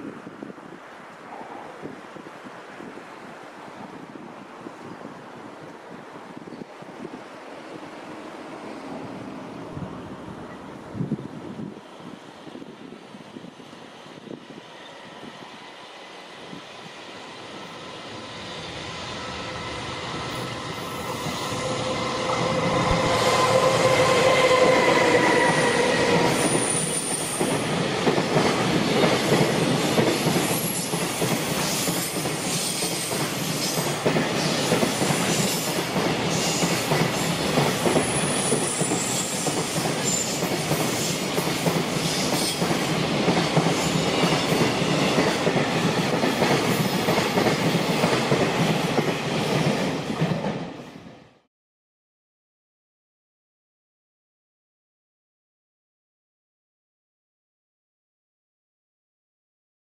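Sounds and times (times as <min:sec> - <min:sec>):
electric locomotive whine: 0:07.4 - 0:47.4
train wheels rumbling on rails: 0:11.0 - 0:50.8.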